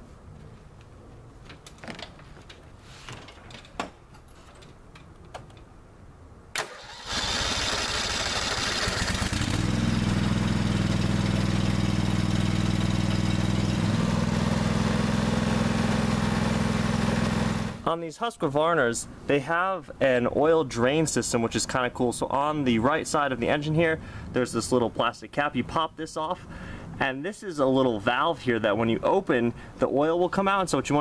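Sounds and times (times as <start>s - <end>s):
starter cranking: 6.6s - 9.7s
mower engine running: 6.6s - 17.8s.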